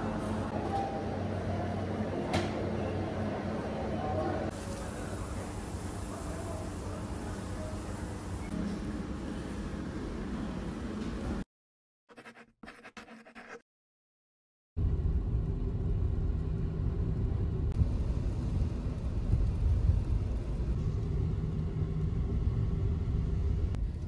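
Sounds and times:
low vehicle rumble: 0:14.8 - 0:24.0.

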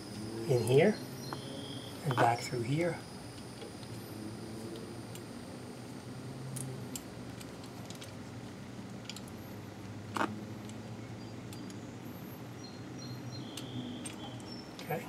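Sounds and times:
metallic clicks of brake parts: 0:08.9 - 0:09.4, 0:13.4 - 0:14.9.

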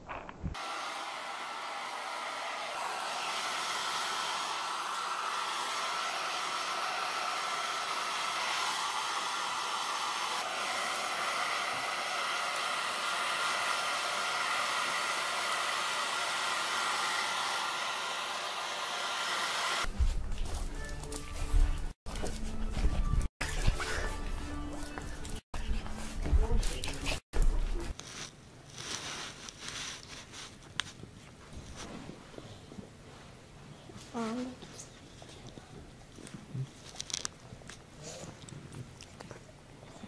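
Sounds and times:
hair dryer blowing: 0:00.6 - 0:20.0.

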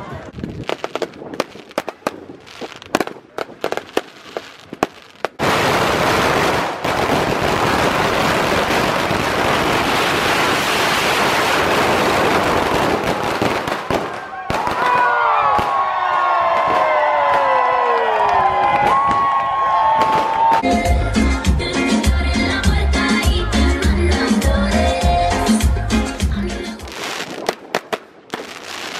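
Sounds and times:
firework bangs: 0:00.2 - 0:15.9, 0:26.9 - 0:28.9
firecrackers exploding rapidly: 0:00.3 - 0:15.8, 0:26.8 - 0:28.9.

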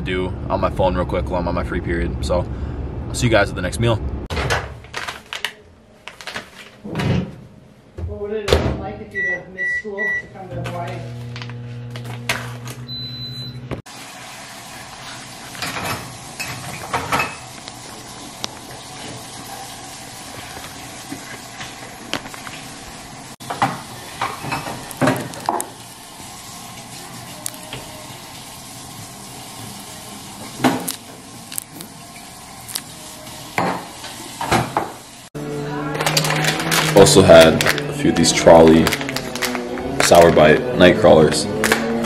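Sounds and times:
kitchen knocks and clatters: 0:04.3 - 0:05.5, 0:06.1 - 0:08.9, 0:15.6 - 0:17.6, 0:23.4 - 0:25.8, 0:33.6 - 0:35.0
plastic pouch crinkling: 0:04.8 - 0:06.8, 0:30.8 - 0:33.0, 0:36.0 - 0:40.3
high beep: 0:09.2 - 0:10.3, 0:12.9 - 0:13.6
microwave oven humming: 0:09.2 - 0:34.1.

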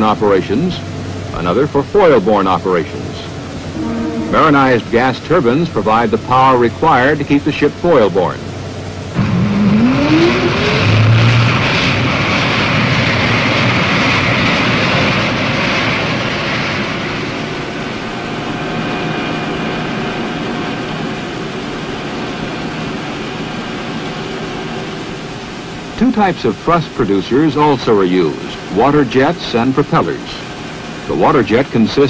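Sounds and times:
gas turbine running: 0:00.0 - 0:32.0
water rushing and spraying: 0:00.0 - 0:32.0
high whining tones: 0:03.0 - 0:08.0, 0:09.0 - 0:12.3.

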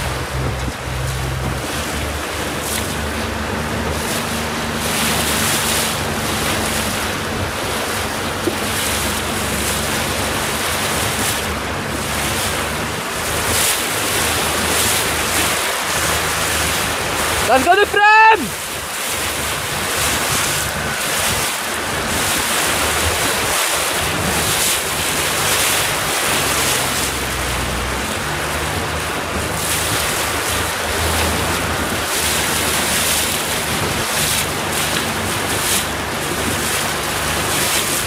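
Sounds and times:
wind buffeting the microphone: 0:00.0 - 0:17.5
water rushing past a boat: 0:00.0 - 0:38.0.

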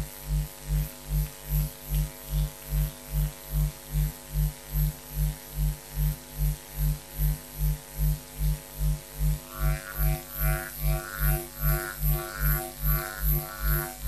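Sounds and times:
pulsing electrical hum: 0:00.0 - 0:14.0
steady high tones: 0:09.4 - 0:14.0.

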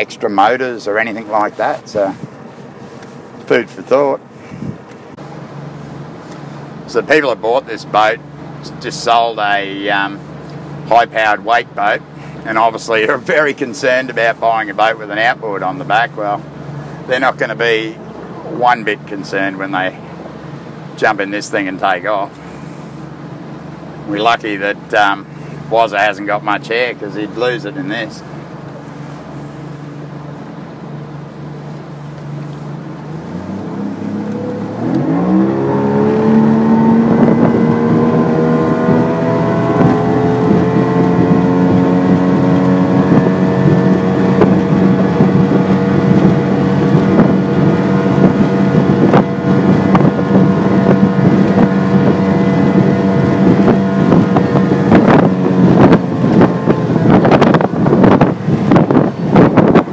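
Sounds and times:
outboard motor accelerating: 0:00.0 - 0:59.9
wind noise on microphone: 0:04.4 - 0:04.9, 0:33.1 - 0:59.9.

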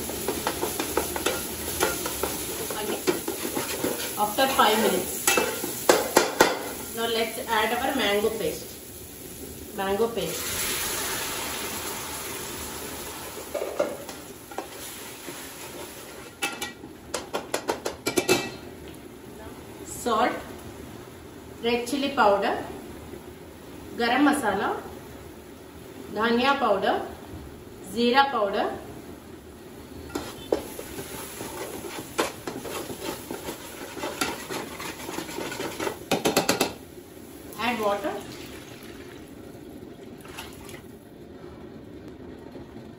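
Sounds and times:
paste sizzling in hot oil: 0:00.0 - 0:16.6, 0:30.0 - 0:39.3
spoon scraping metal pot: 0:01.2 - 0:04.2, 0:30.1 - 0:36.6.

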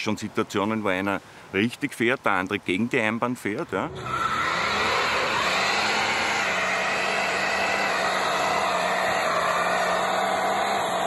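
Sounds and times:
car engine revving: 0:03.9 - 0:11.0
tyres screeching: 0:03.9 - 0:11.0.

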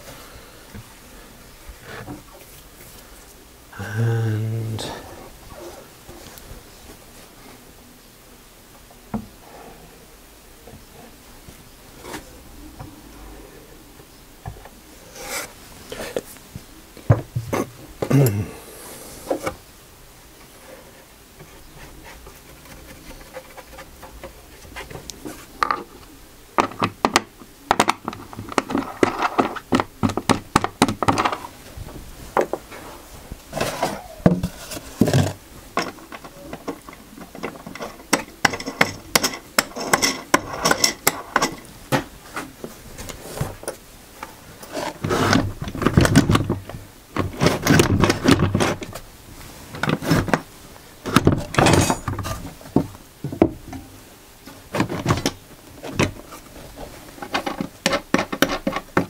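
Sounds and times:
wood and tools knocking: 0:26.6 - 0:31.5, 0:33.6 - 0:42.6, 0:57.2 - 0:59.0.

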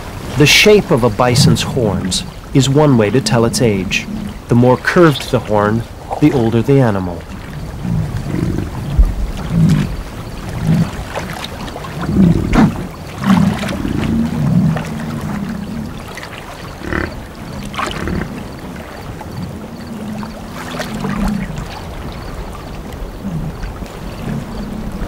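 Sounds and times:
water sloshing: 0:00.0 - 0:25.0
bison grunting: 0:01.0 - 0:04.6, 0:05.7 - 0:11.3, 0:11.9 - 0:16.0, 0:16.8 - 0:18.5.

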